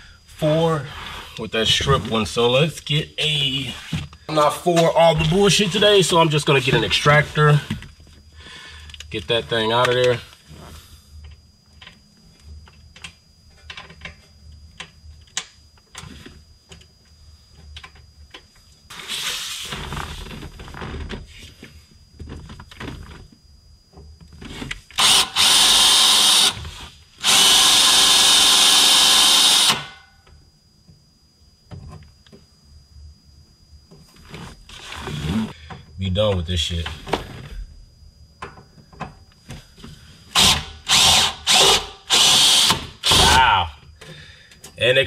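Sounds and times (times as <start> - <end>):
cordless drill running: 25.0 - 30.0, 40.3 - 43.4.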